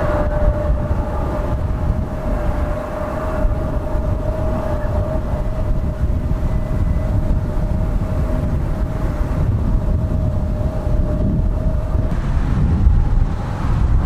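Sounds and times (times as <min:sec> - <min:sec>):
jet engines whining and rumbling: 0:00.0 - 0:14.0.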